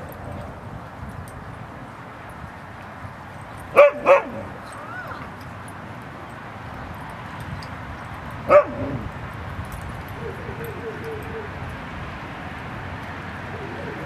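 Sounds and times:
dog barking: 3.8s - 4.5s, 8.5s - 9.0s.

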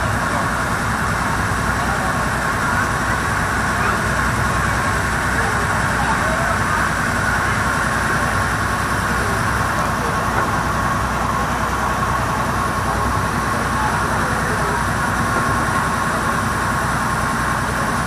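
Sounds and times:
boat engine drone: 0.0s - 18.0s
wind: 0.0s - 18.0s.

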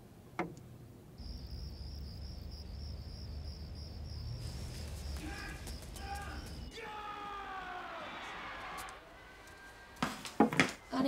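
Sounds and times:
crickets chirping: 1.2s - 10.0s.

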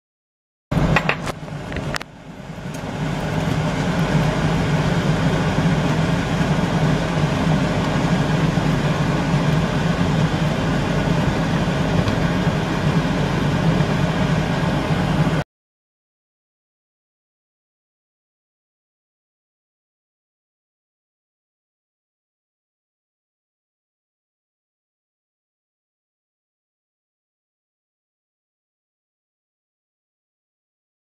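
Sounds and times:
water boiling hard in pot: 0.8s - 15.4s.

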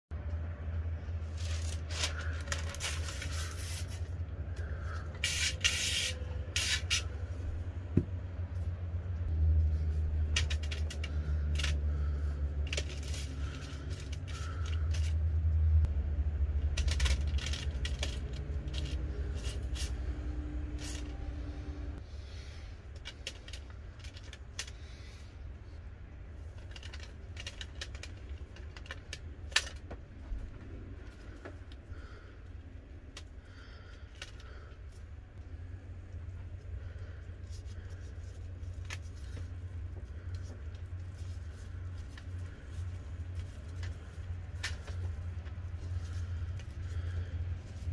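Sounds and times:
steady low hum: 0.1s - 47.9s
foil and paper crinkling: 1.3s - 4.1s.

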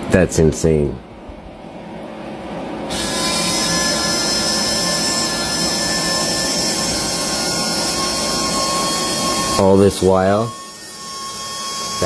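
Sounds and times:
small electric motor whirring: 2.9s - 12.0s.

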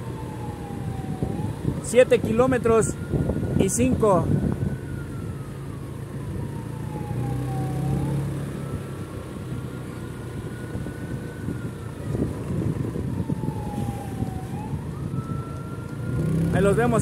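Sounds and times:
siren wailing: 0.0s - 17.0s
vehicle engine rumble: 0.0s - 17.0s.

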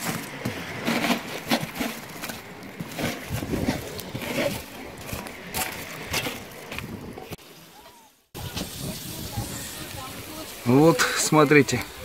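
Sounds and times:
stick raking charcoal: 0.0s - 6.8s.

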